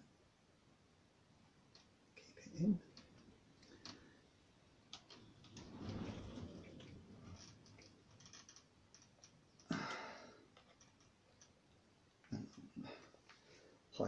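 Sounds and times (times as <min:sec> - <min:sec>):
faint clicks: 0:01.7 - 0:02.0, 0:04.8 - 0:13.6
cloth rustling: 0:05.0 - 0:09.6.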